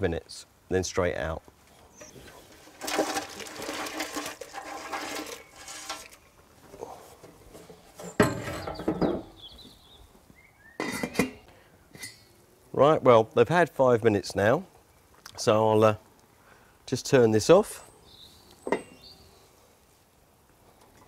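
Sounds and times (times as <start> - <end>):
water boiling: 2.1 - 6.5
crayfish clattering in metal tray: 2.4 - 6.2
metal lid clinking on pot: 10.8 - 11.4.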